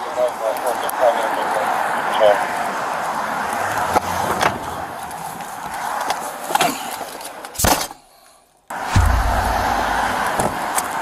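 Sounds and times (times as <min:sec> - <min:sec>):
roadside traffic: 0:00.0 - 0:11.0
car door slamming: 0:08.9 - 0:10.6
low rumble: 0:08.9 - 0:10.6.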